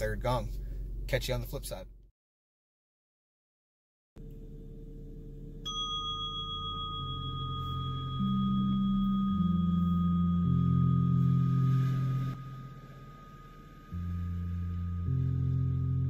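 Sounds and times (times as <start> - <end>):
low ambient music pad: 4.2 - 16.0
meditation chime ringing: 5.6 - 16.0.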